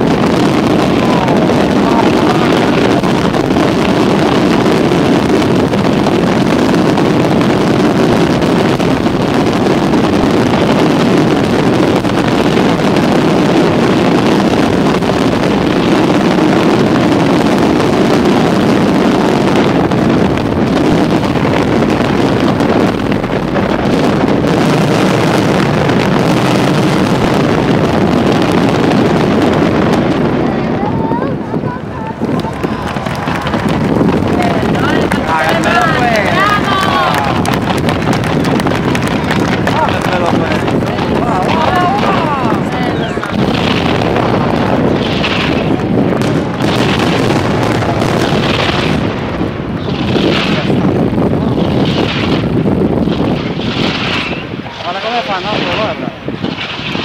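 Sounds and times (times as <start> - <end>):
fireworks shells bursting: 31.6 - 57.0.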